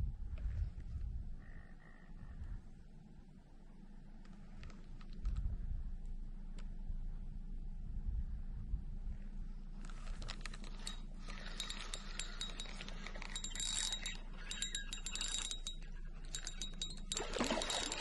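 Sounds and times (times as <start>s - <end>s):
metallic clicking and jingling: 10.4s - 18.0s.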